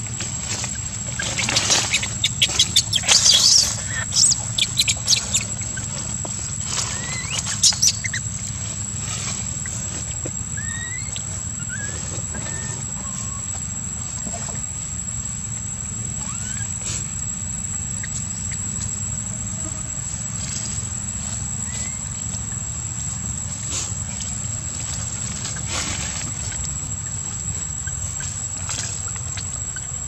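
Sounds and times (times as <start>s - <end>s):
low background hum: 0.0s - 30.0s
infant monkey squealing: 0.7s - 6.0s, 6.7s - 8.3s, 10.5s - 13.5s, 16.2s - 17.0s, 21.7s - 22.1s.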